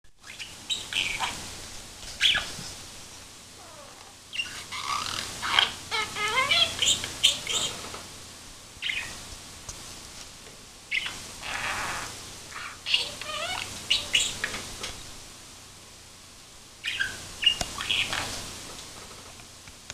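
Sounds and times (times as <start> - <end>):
budgerigar chirping and warbling: 0.3 - 1.4, 2.2 - 2.4, 4.3 - 7.8, 8.8 - 9.1, 10.9 - 14.5, 16.8 - 18.3.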